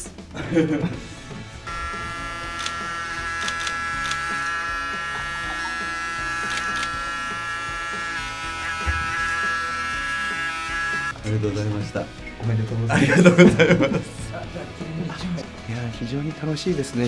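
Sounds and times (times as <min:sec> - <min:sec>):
electric hair clippers buzzing: 0:01.6 - 0:11.2.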